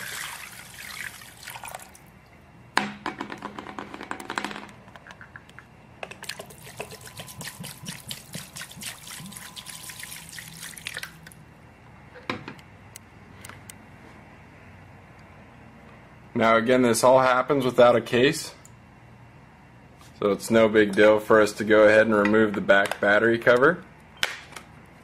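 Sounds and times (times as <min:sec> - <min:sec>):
water splashing and dripping: 0:06.2 - 0:11.4.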